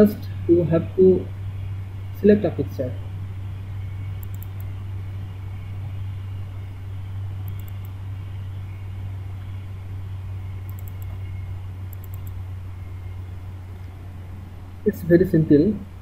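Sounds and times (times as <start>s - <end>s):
low hum with hiss: 0.0s - 16.0s
computer mouse clicks: 4.2s - 4.7s, 7.4s - 8.0s, 10.6s - 11.2s, 11.9s - 12.4s.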